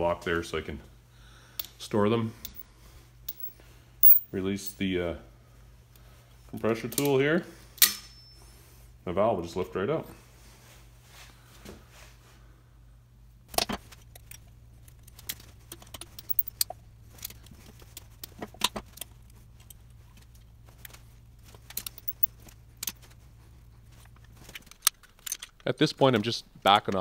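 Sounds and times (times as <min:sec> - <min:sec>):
metallic clicks and clinks: 0:03.3 - 0:04.8, 0:14.1 - 0:18.1, 0:21.5 - 0:23.1
steady low hum: 0:12.4 - 0:25.6.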